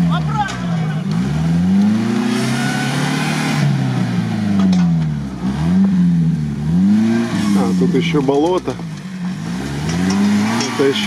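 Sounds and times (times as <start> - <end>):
off-road engine revving: 0.0 - 11.0.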